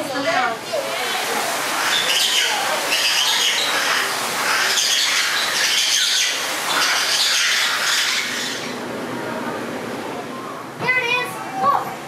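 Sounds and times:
birds chirping and squawking: 0.2s - 8.9s.

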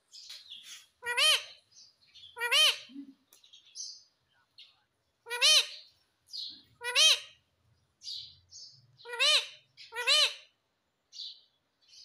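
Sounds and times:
parrot calling: 1.0s - 1.6s, 2.3s - 2.9s, 5.2s - 5.9s, 6.6s - 7.4s, 9.0s - 10.6s
soft parrot chirps: 9.0s - 10.6s.

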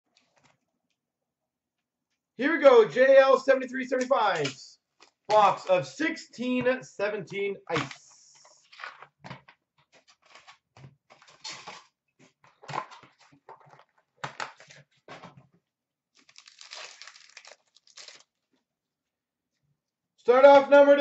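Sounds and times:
foil wrapper rustling and crinkling: 10.0s - 11.9s, 16.2s - 18.5s.

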